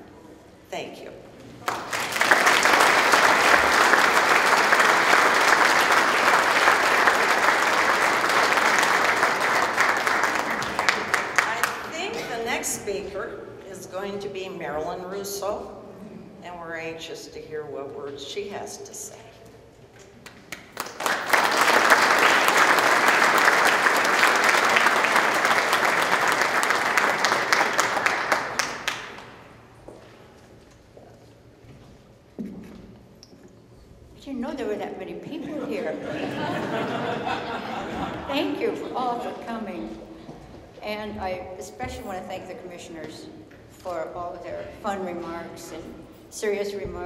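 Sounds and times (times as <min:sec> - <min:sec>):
audience applauding: 0:01.6 - 0:12.1, 0:20.5 - 0:29.5.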